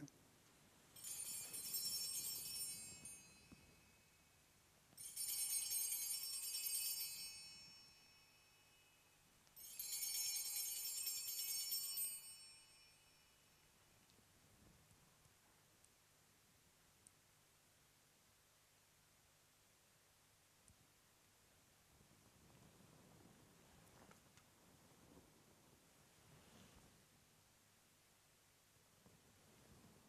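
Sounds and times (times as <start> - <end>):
small altar bells jingling: 0.9 - 13.6.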